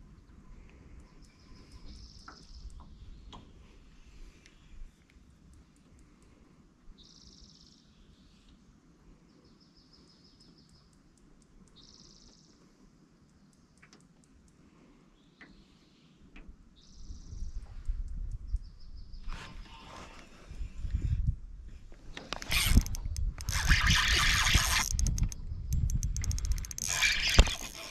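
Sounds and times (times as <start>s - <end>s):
songbird singing: 0.0s - 6.3s, 6.9s - 8.6s, 9.2s - 12.6s, 15.1s - 19.8s, 24.6s - 27.8s.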